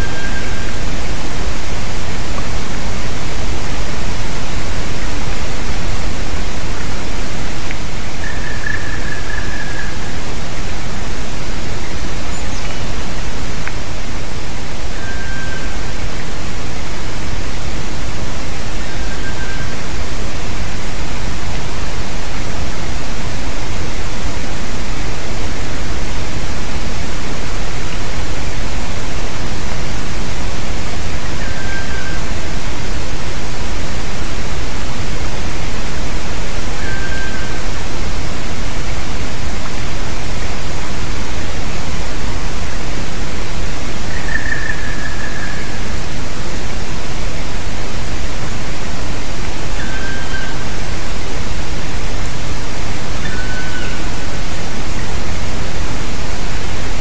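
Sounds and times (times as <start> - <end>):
steady hiss: 0.0 - 57.0
woodpecker calling: 8.2 - 10.2, 11.8 - 13.2, 14.9 - 16.0, 31.2 - 32.4, 36.8 - 37.7, 44.1 - 46.0, 49.7 - 51.0, 53.2 - 54.3.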